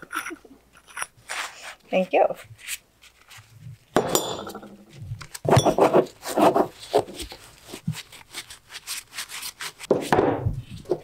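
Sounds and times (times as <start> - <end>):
metal fittings clinking: 4.0 - 4.8.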